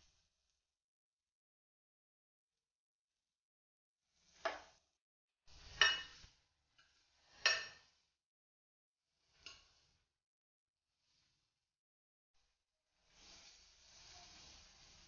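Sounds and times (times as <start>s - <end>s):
metal spatula clinking on glass pan: 5.8s - 6.2s, 7.4s - 7.9s.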